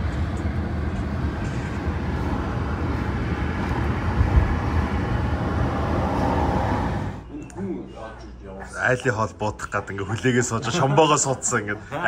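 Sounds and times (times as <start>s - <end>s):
tyres rumbling on road: 0.0s - 7.2s.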